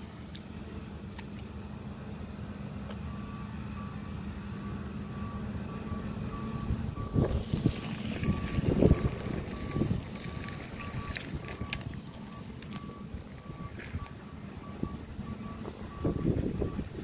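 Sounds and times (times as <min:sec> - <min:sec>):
farm machinery humming: 0:00.0 - 0:17.0
reversing alarm beeping: 0:03.0 - 0:17.0
uneven rumbles: 0:06.7 - 0:17.0.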